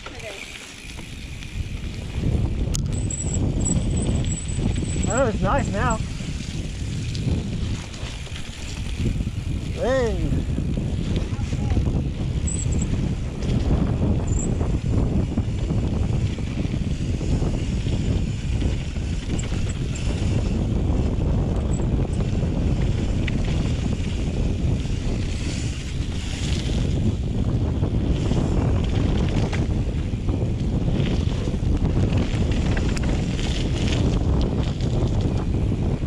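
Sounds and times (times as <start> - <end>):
tyres rolling on gravel: 0.0 - 2.4, 3.8 - 9.9, 28.2 - 35.8
bike clicks and rattles: 0.0 - 36.0
wind buffeting microphone: 0.0 - 36.0.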